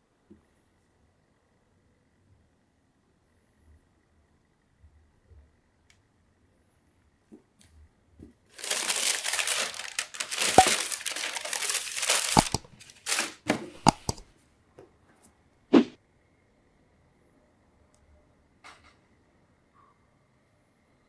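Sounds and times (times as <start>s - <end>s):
tissue paper crinkling: 8.5s - 13.5s.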